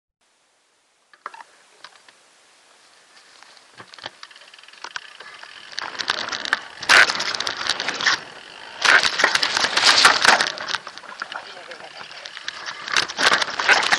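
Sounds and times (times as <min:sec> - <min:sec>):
bike clicks and rattles: 0:03.4 - 0:13.9
tyre noise: 0:05.0 - 0:13.9.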